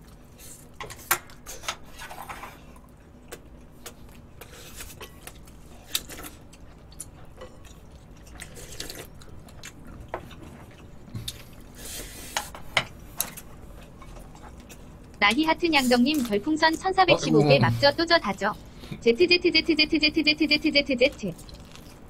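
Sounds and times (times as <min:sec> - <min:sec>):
wet chewing: 0:02.8 - 0:12.5, 0:13.2 - 0:16.9, 0:21.0 - 0:22.0.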